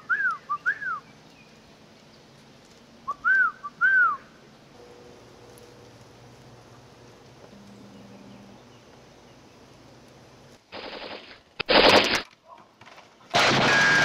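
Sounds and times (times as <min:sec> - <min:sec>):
whistled call: 0:00.0 - 0:01.1, 0:03.1 - 0:04.3.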